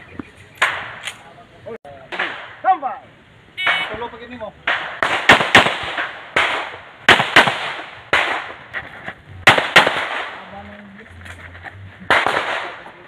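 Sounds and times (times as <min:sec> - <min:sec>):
pistol shots with echo: 0:04.6 - 0:08.6, 0:09.4 - 0:10.5, 0:12.1 - 0:13.0.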